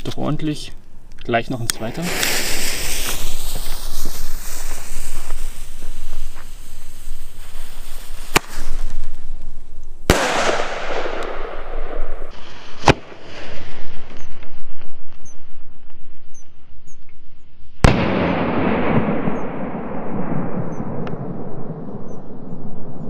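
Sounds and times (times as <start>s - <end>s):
hiss after bang: 2.0s - 8.9s.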